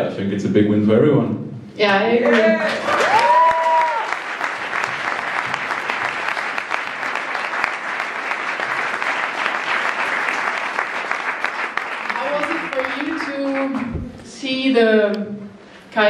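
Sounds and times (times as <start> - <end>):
audience applauding: 2.3 - 13.9.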